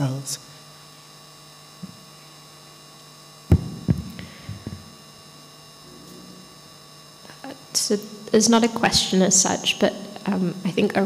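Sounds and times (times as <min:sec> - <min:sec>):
electrical mains hum: 0:00.0 - 0:11.0
loud low thump: 0:03.5 - 0:04.9.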